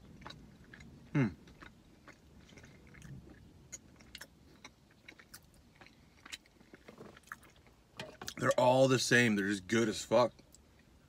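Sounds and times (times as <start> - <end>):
person chewing: 0.0 - 8.6.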